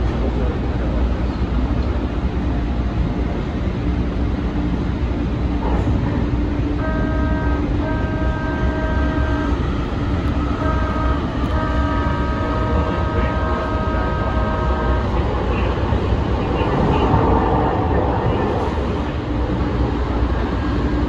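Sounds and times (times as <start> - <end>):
train rumbling along track: 0.0 - 21.0
train horn blasts: 6.6 - 15.8.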